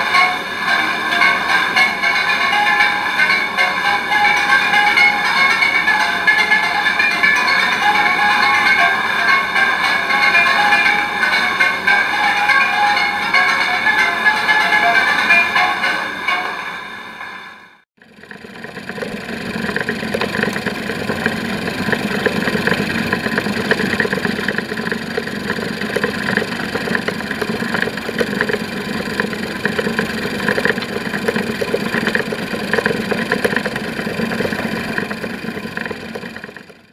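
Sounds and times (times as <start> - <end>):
gramophone spring motor whirring: 0.0 - 17.0, 18.0 - 36.9
rapid fine ticking: 18.0 - 36.9.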